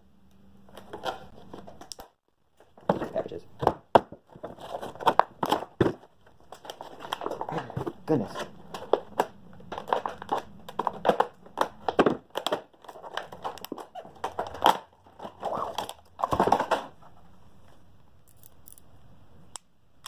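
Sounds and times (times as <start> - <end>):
packaging crinkling and tearing: 4.3 - 16.8.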